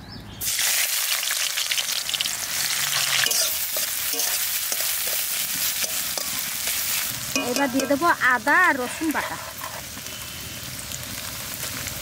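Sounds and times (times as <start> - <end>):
onions sizzling in oil: 0.4 - 12.0
metal spatula scraping pan: 2.9 - 6.5, 7.4 - 9.9.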